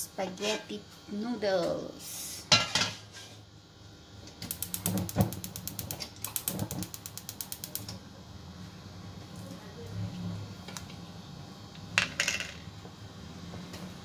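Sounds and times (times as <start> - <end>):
ratchet-like mechanical clicking: 4.4 - 7.9.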